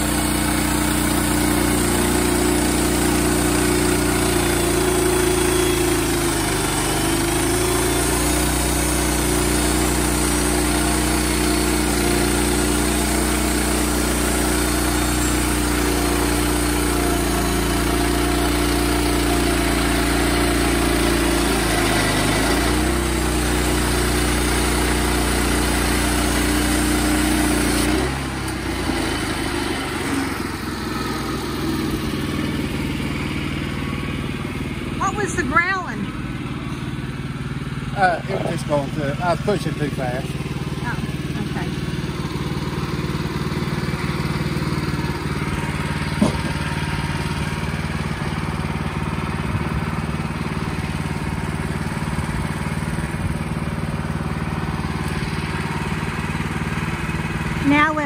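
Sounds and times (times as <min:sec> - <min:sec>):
sawmill engine running under load: 0:00.0 - 0:58.0.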